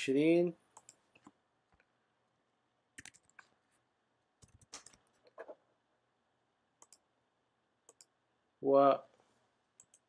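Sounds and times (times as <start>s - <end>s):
computer mouse clicks: 0.8s - 1.9s, 3.0s - 3.5s, 4.4s - 5.5s, 6.8s - 7.0s, 7.9s - 8.1s, 9.8s - 10.0s.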